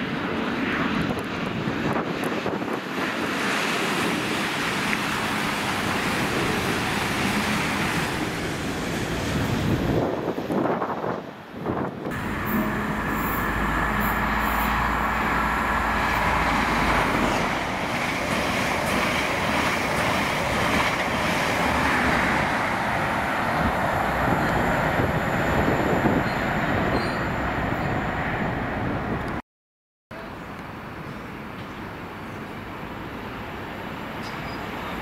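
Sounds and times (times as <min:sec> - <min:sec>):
train wheels on rails: 0:01.2 - 0:29.4.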